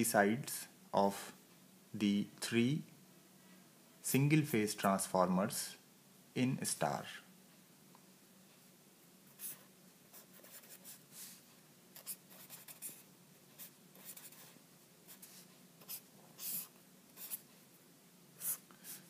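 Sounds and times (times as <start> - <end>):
pen scratching on paper: 9.4 - 11.4, 12.0 - 13.0, 13.6 - 17.5, 18.4 - 19.0.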